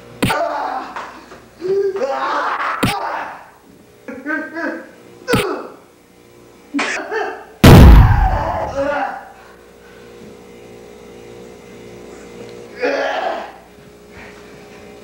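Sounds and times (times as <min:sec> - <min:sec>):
faint steady hum: 0:00.0 - 0:15.0
punch smack: 0:00.2 - 0:00.4, 0:07.6 - 0:08.7
heavy ringing thud: 0:07.6 - 0:08.8
person shouting: 0:08.0 - 0:09.2.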